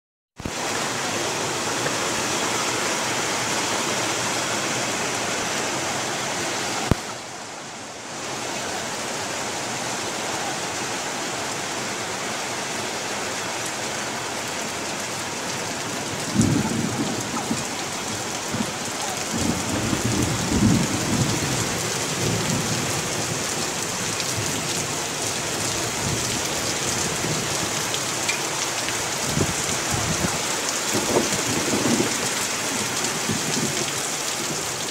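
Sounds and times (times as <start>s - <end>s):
heavy rain hissing: 0.4s - 34.9s
thunder rumbling: 16.1s - 23.3s.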